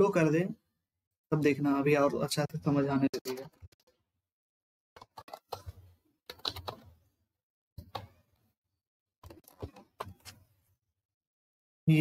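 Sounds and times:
computer keyboard typing: 5.0s - 7.0s, 7.8s - 8.3s, 9.2s - 10.4s.

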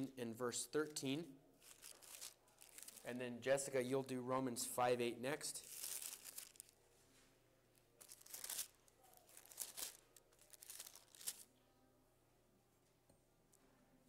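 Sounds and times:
thin pages being turned: 5.7s - 6.7s, 8.0s - 11.4s.

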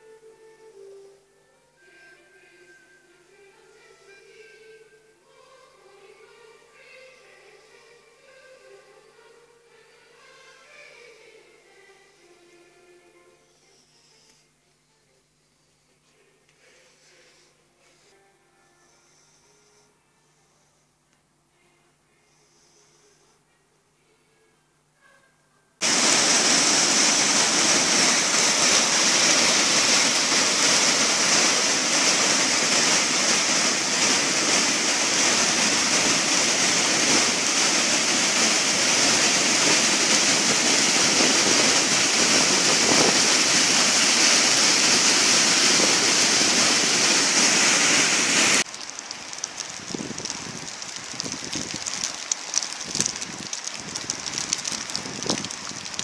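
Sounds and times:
river rushing: 25.8s - 49.7s
rain and wind: 25.8s - 56.0s
rain spatters: 25.8s - 56.0s.

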